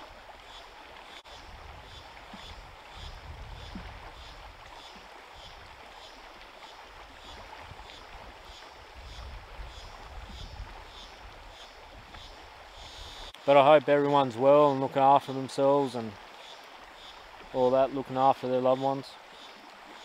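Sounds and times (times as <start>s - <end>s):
wind buffeting microphone: 1.4s - 4.6s, 8.9s - 12.2s.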